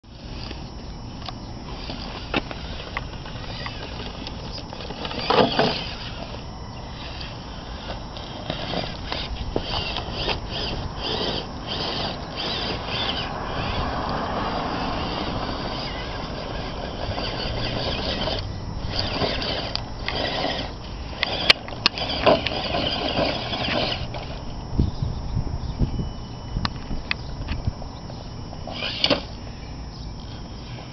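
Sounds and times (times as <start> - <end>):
small motor and gears whining: 0.1 - 30.9
tyres scraping on stones: 1.7 - 13.7, 15.0 - 24.4.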